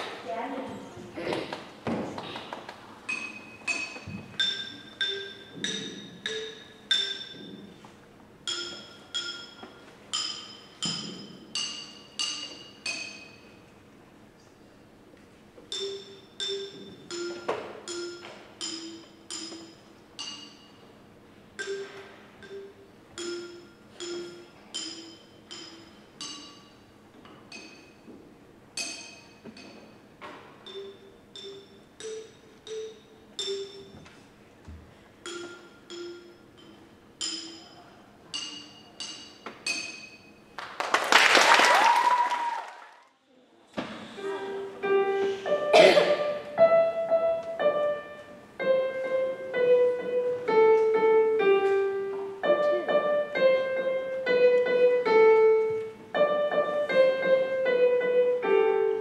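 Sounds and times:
xylophone melody: 3.1 - 13.6, 15.7 - 20.9, 21.6 - 26.9, 30.6 - 34.2, 35.2 - 40.5.

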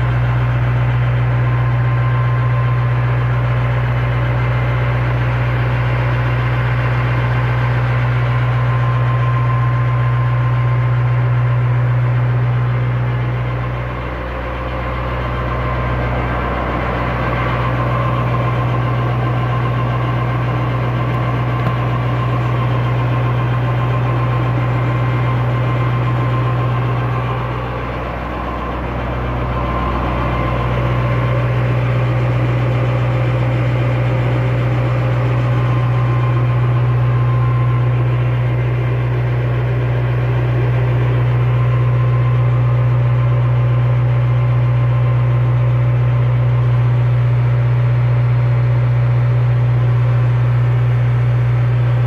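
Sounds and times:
generator droning: 0.0 - 52.0.

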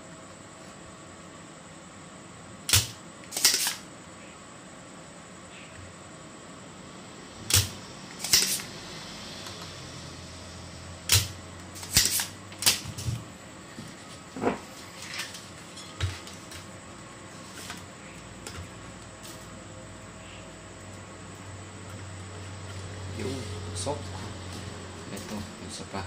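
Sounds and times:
desoldering pump snapping: 2.7 - 3.8, 7.5 - 8.7, 11.1 - 13.0
tools being handled: 11.1 - 13.2.

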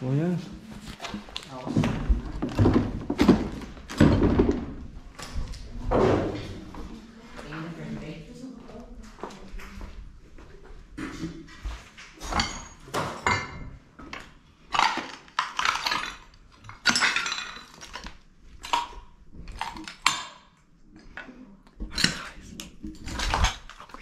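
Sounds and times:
debris clinking and clattering: 14.7 - 18.9, 22.8 - 23.8.

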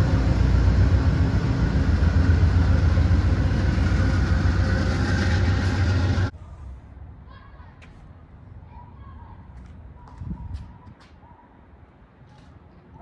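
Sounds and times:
diesel locomotive rumbling: 0.0 - 7.2
rail noise: 0.0 - 13.0.

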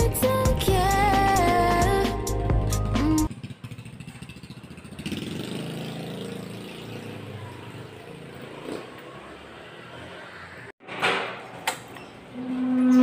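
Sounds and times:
small motorcycle engine running: 3.3 - 10.7.

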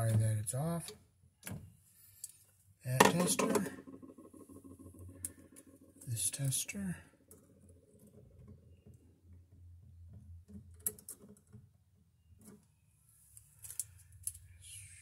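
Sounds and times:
faint clicks and ticks of probes: 2.2 - 2.5.

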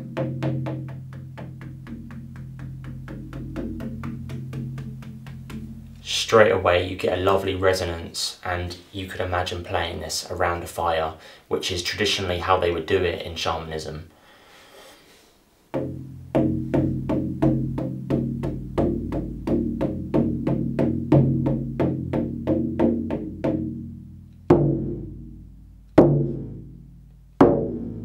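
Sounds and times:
frame drum struck with beater: 0.0 - 7.3, 15.8 - 25.4, 26.0 - 26.8, 27.4 - 28.0.

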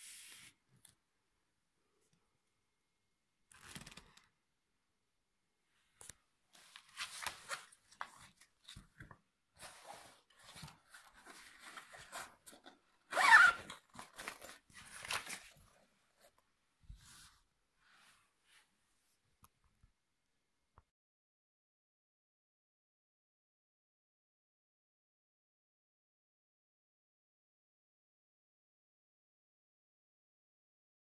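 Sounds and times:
paper rustling: 6.6 - 12.6, 13.5 - 16.3.

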